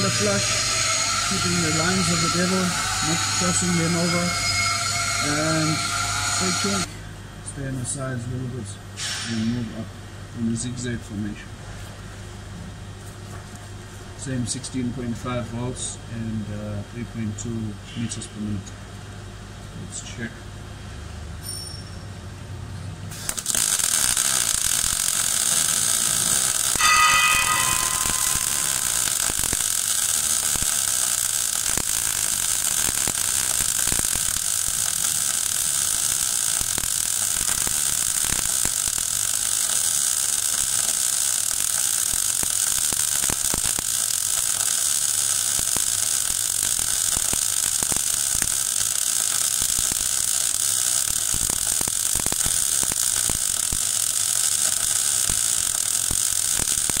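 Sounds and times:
welding arc crackle and hiss: 0.0 - 6.9, 9.0 - 9.8, 23.1 - 57.0
brief high-pitched tone: 26.8 - 29.1.

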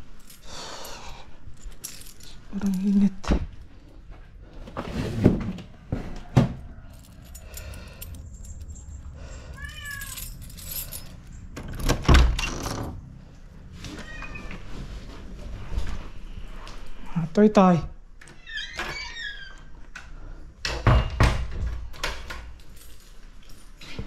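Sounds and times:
cat meowing: 9.6 - 10.2, 13.9 - 14.6.

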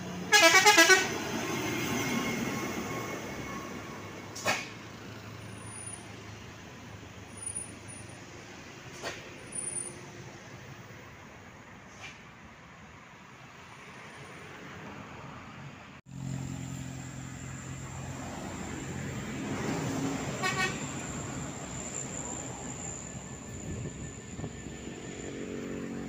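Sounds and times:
coach diesel engine passing: 0.0 - 11.1, 16.1 - 26.0
road traffic: 0.0 - 26.0
horn toot: 0.3 - 1.2, 20.3 - 20.9.

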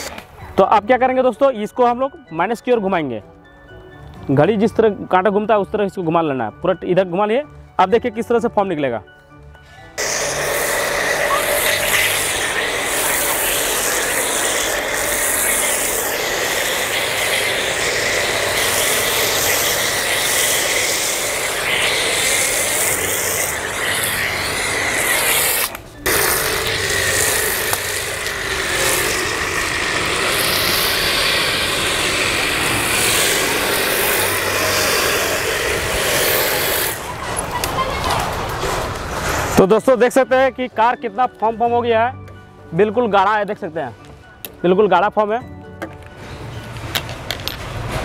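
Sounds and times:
foam spray hissing: 10.0 - 37.2
pressure washer running: 10.0 - 37.2.

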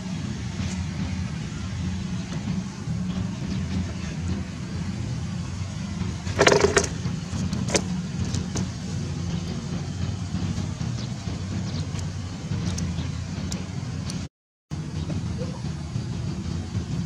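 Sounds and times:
motor humming: 6.2 - 8.5
sharp clicks and knocks: 6.3 - 8.7.

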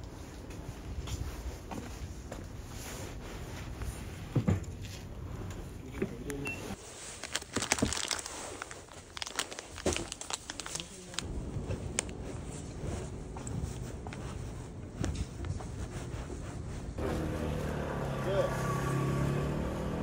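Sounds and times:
packaging crinkling: 6.8 - 11.3.

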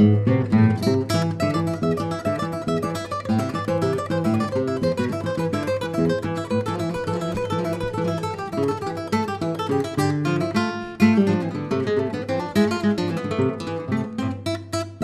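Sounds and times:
acoustic guitar plucked and strummed: 0.0 - 15.0.

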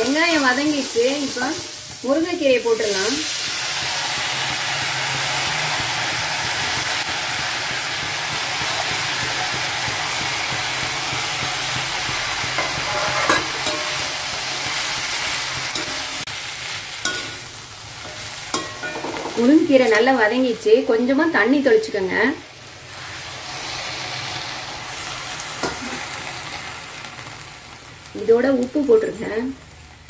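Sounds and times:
leaves sizzling in hot oil: 0.0 - 30.0
steel ladle scraping pan: 12.4 - 20.0, 25.6 - 26.2.

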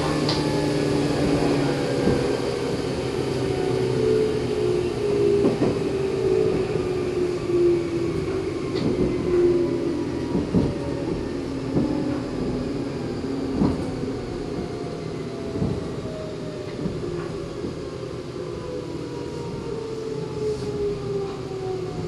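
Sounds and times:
train running rumble: 0.0 - 22.0
rail joint clacks: 10.3 - 12.6.

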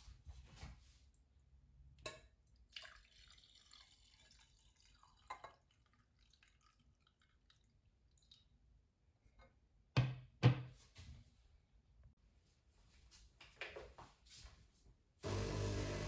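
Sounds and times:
water trickling into a glass: 2.5 - 8.6.

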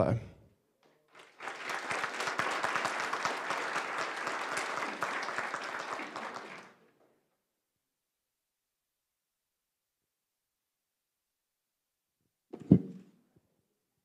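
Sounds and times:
audience applauding: 1.1 - 7.0.

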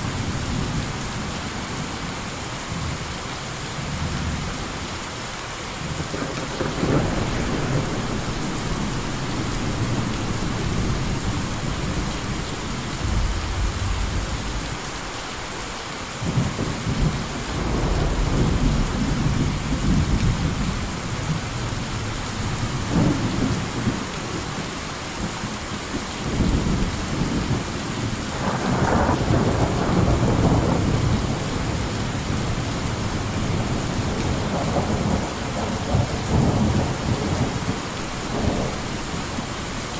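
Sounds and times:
heavy rain: 0.0 - 39.9
rolling thunder: 5.8 - 24.6, 26.3 - 39.5.

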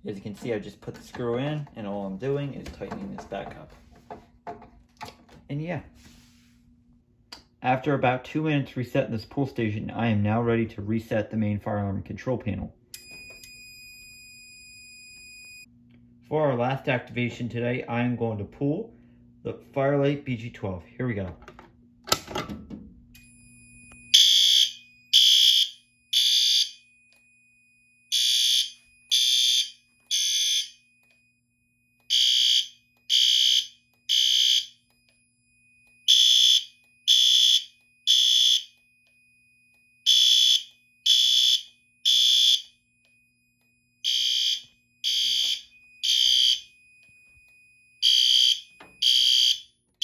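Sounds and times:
fire alarm horn beeps: 24.0 - 27.2, 28.1 - 31.2, 32.0 - 35.2, 36.0 - 39.2, 39.9 - 42.8, 44.0 - 49.8.

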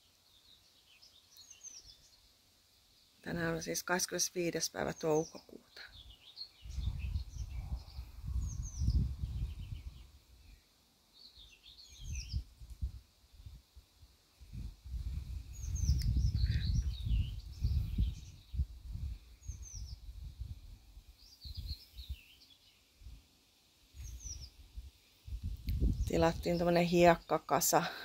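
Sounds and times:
small birds chirping: 0.0 - 13.7, 14.5 - 28.0
wind buffeting microphone: 6.6 - 10.2, 12.0 - 13.6, 14.4 - 22.2, 24.0 - 27.1.

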